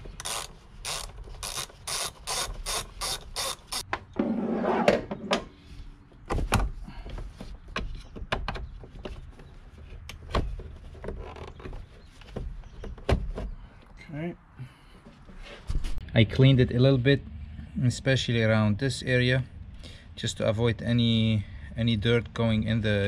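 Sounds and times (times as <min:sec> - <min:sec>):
socket ratchet clicking: 0:00.2 - 0:03.9
rough rubbing scrape: 0:04.2 - 0:05.1
handling knocks and clicks: 0:06.3 - 0:13.6.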